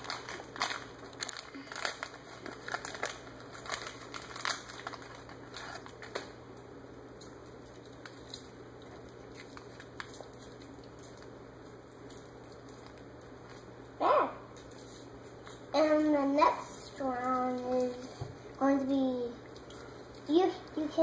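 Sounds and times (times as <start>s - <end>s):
snack packaging rustling: 0.0s - 13.9s.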